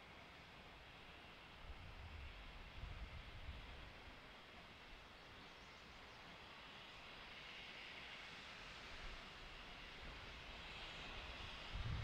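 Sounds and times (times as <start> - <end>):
distant steam locomotive rumble: 0.0 - 12.0
steady hiss: 0.0 - 12.0.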